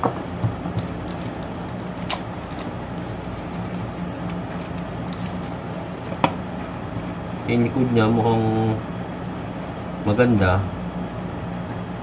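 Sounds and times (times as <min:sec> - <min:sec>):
low room hum: 0:00.0 - 0:12.0
plastic sleeve handling: 0:00.5 - 0:06.2.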